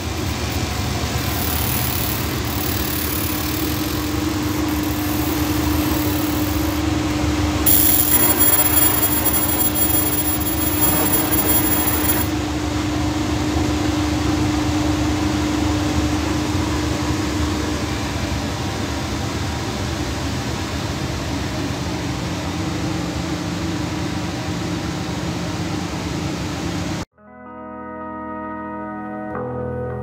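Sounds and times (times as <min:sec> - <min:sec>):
high-pitched whine: 0:00.0 - 0:18.3
air extraction blowing hum: 0:00.0 - 0:27.0
lower humming tone: 0:00.3 - 0:12.3.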